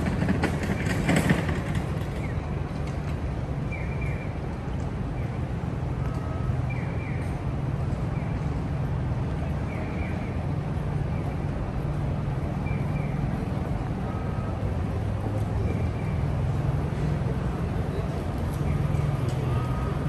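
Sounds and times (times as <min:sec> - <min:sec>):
low engine hum: 0:00.0 - 0:20.0
faint crowd chatter: 0:09.1 - 0:20.0.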